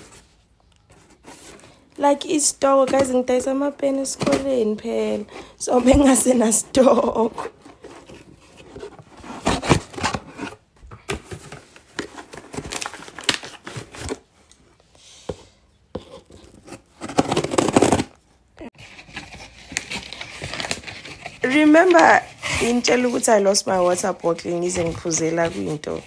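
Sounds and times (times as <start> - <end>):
packaging ripping and snipping: 12.0 - 14.2, 16.4 - 18.2.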